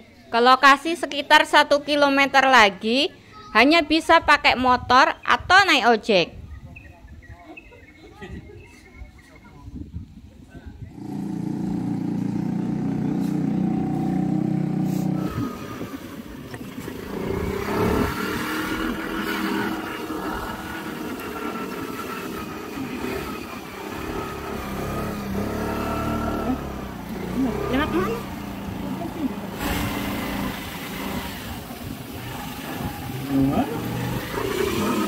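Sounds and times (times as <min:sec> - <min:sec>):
motorcycle engine revving: 0:10.8 - 0:35.0
low engine drone: 0:11.0 - 0:35.0.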